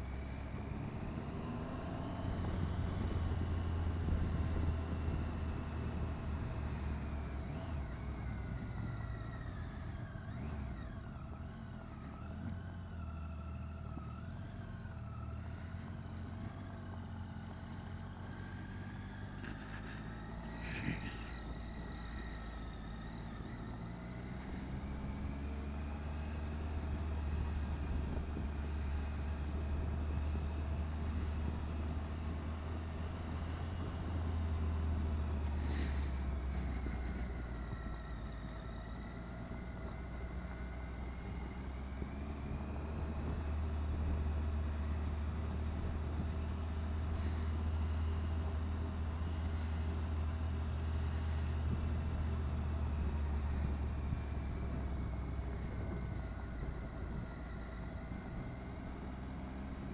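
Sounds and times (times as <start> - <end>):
motorcycle engine running: 0.0 - 59.0
wind rumble on microphone: 53.5 - 58.6.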